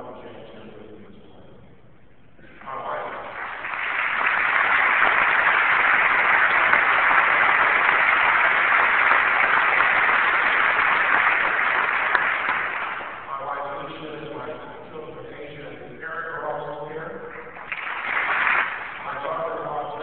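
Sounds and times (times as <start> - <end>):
audience applauding: 2.8 - 13.3, 17.4 - 19.4.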